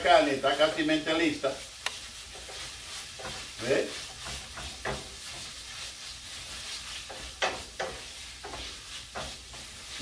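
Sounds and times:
meat sauce sizzling in a pan: 0.0 - 10.0
wooden spoon striking pan: 2.3 - 5.4, 7.0 - 9.7.

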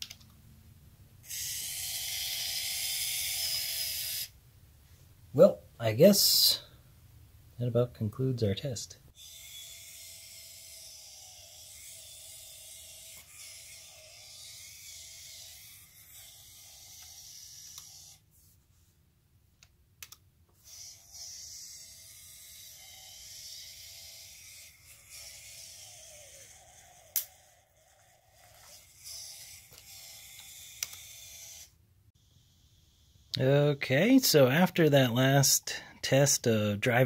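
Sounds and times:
small motor whirring: 1.2 - 4.4, 9.1 - 18.3, 20.6 - 33.4.

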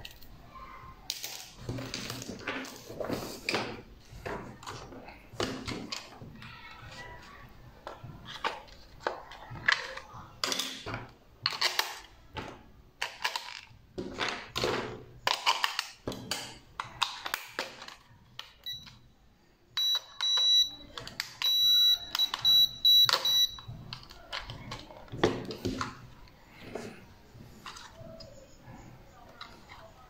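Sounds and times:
plastic controller clicks and rattles: 19.8 - 26.2
high electronic beeps: 21.4 - 23.7.

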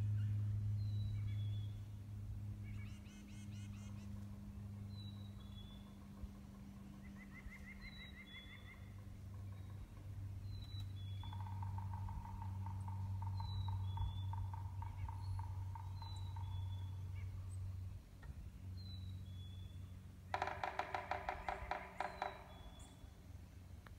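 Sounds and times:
lower rhythmic bird calls: 0.0 - 23.9
bird fast trill: 20.4 - 23.2.

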